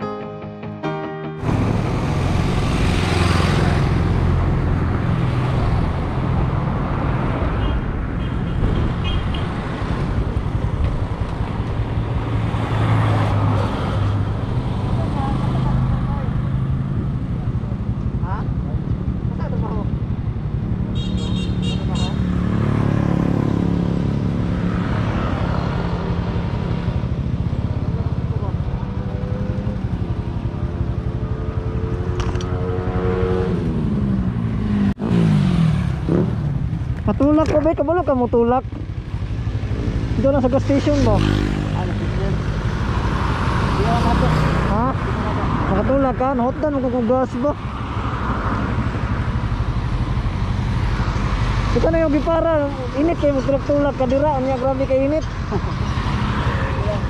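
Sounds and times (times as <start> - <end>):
cars driving past: 1.4 - 17.3, 38.8 - 57.0
motorcycle driving past: 28.3 - 36.9.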